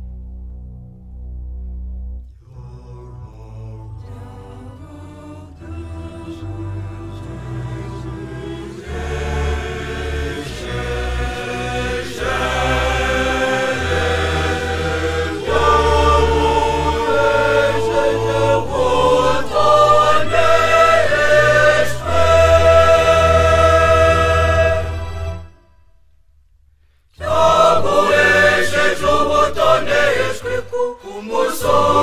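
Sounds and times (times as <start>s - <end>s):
low bass accompaniment: 0.0s - 25.7s
choir singing sacred song: 2.4s - 25.7s, 27.2s - 32.0s.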